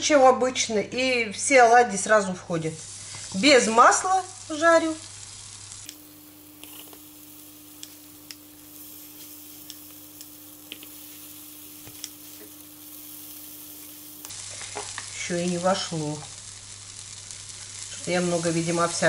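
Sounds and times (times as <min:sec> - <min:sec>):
batter sizzling in a pan: 0:02.5 - 0:19.0
steady hum: 0:03.0 - 0:14.5.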